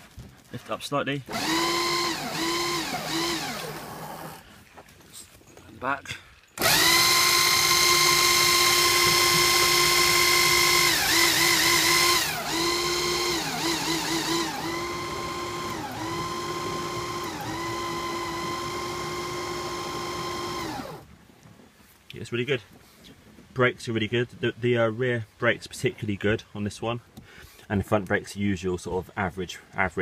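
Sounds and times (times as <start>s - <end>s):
electric motor whining: 1.3s - 4.4s, 6.6s - 21.0s.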